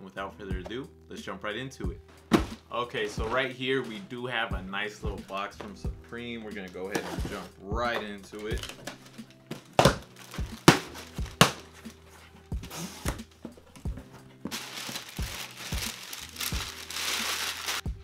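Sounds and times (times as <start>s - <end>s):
tissue paper crinkling: 10.1s - 12.3s, 14.4s - 17.9s
cardboard box tape ripping: 14.5s - 17.9s.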